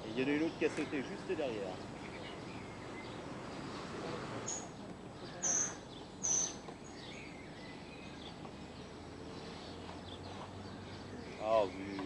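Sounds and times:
faint birdsong: 0.0 - 12.0
steady outdoor hiss: 0.0 - 12.0
high-pitched bird calls: 4.4 - 8.4.

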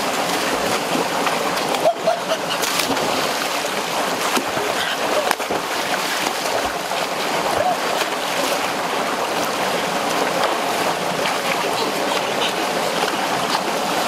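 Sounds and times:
water splashing: 0.0 - 14.0
waterfall rushing over rocks: 0.0 - 14.0.

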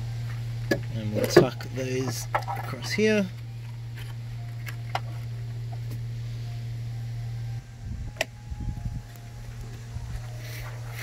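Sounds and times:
low hum: 0.0 - 11.0
phone handling rumble and knocks: 0.2 - 6.1.

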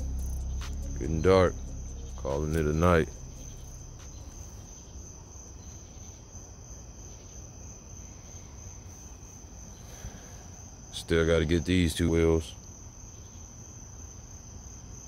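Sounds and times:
faint low rumble: 0.0 - 5.6
crickets chirping: 0.0 - 15.0.

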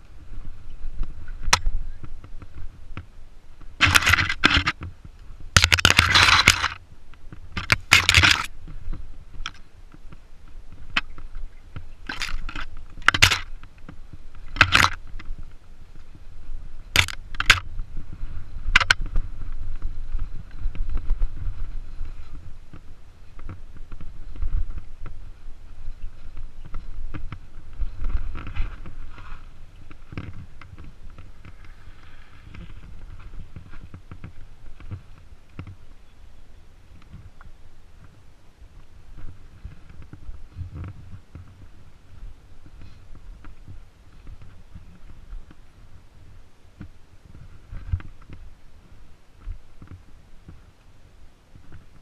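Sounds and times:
low rumble of bike riding: 0.0 - 52.0
bike scraping and rattling: 3.7 - 16.2, 16.9 - 35.8.

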